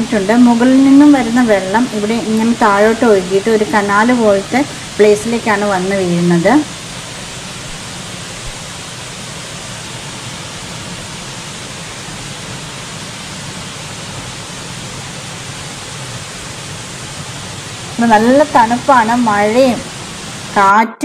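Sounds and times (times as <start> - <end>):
waterfall rushing over rocks: 0.0 - 20.7.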